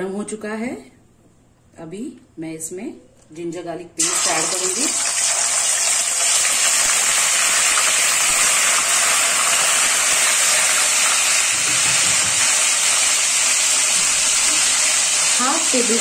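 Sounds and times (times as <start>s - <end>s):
paste sizzling in hot oil: 4.0s - 16.0s.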